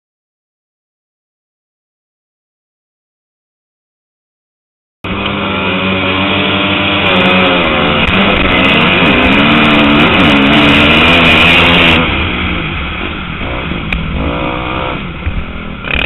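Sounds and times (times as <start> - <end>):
motocross bike engine revving: 5.0 - 16.0
other motorbikes nearby: 5.0 - 16.0.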